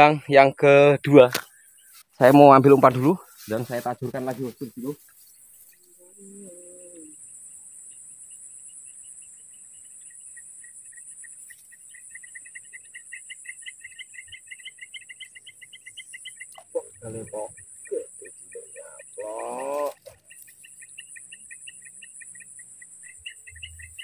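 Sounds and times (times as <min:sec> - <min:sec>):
insects chirping drone: 0:00.0 - 0:24.0
rapid pulsed chirps: 0:06.8 - 0:24.0.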